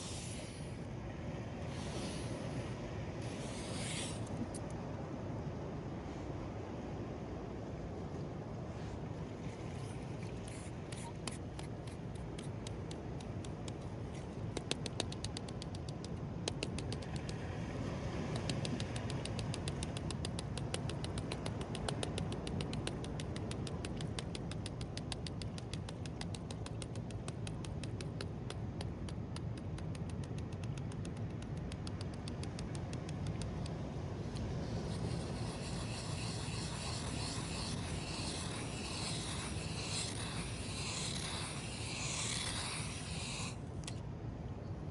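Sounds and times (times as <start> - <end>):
sand being scratched: 0.0 - 0.7, 3.2 - 4.3, 34.6 - 43.6
steady low rush: 26.8 - 44.9.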